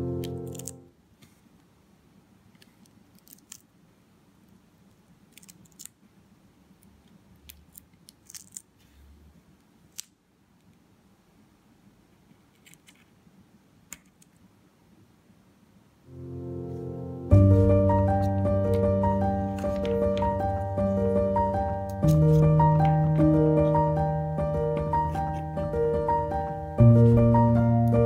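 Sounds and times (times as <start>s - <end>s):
paper and tape crackling: 0.2s - 1.4s, 5.3s - 6.0s, 7.5s - 9.0s, 21.9s - 22.6s.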